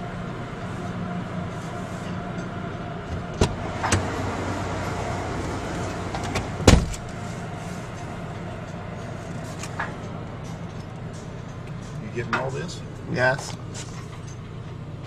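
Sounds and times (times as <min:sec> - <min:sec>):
car wash mechanical hum: 0:00.0 - 0:15.0
loud thump: 0:06.6 - 0:07.0.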